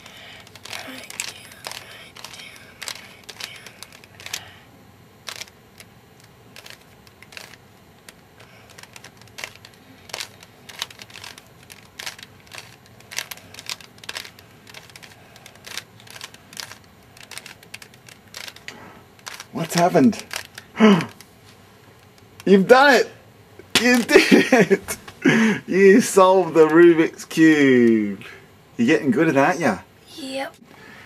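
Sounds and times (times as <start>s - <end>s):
puzzle cube clicking: 0.0s - 4.5s, 5.2s - 21.3s.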